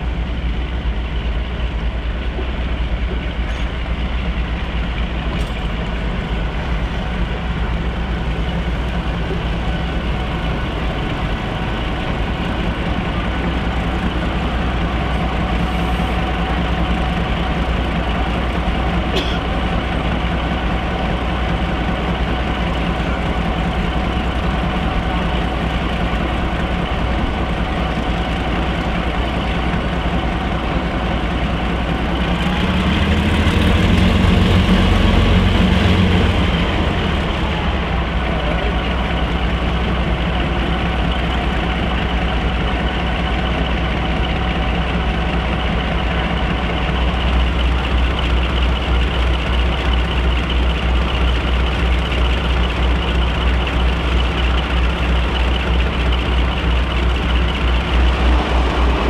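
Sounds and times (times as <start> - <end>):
diesel locomotive engine idling: 0.0 - 59.0
pulsing low throb: 57.1 - 59.0.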